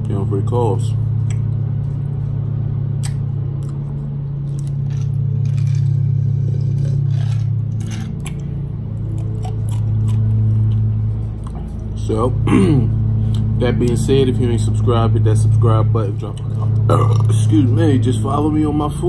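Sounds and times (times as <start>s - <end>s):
low hum: 0.0s - 19.0s.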